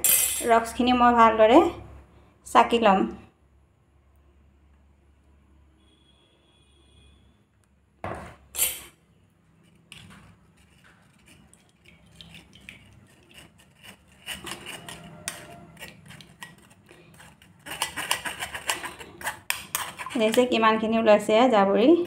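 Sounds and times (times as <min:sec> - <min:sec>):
metal spoon scraping a strainer: 0:08.6 - 0:09.0, 0:09.6 - 0:20.8.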